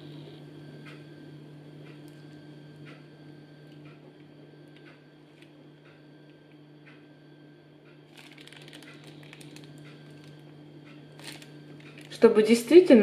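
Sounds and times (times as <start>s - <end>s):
steady low hum: 0.0s - 13.0s
plastic piping bag crinkling: 8.1s - 13.0s.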